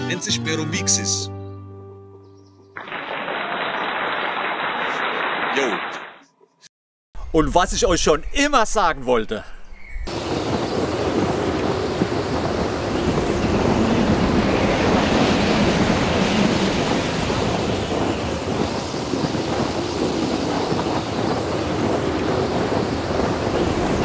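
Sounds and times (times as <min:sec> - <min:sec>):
wind buffeting microphone: 0:10.0 - 0:24.0.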